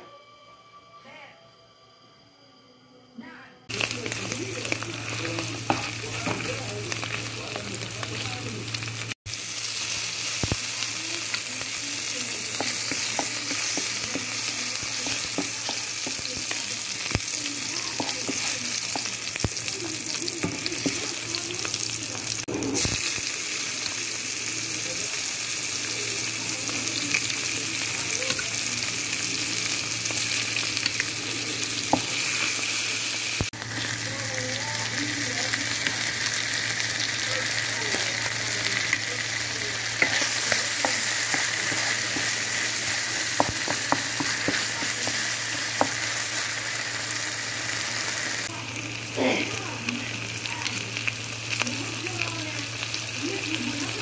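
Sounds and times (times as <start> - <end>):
oil sizzling in a frying pan: 3.7 - 54.0.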